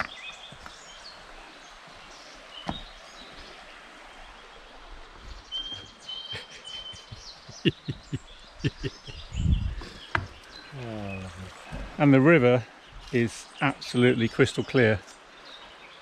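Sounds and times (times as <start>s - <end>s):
steady background hiss: 9.9s - 16.0s.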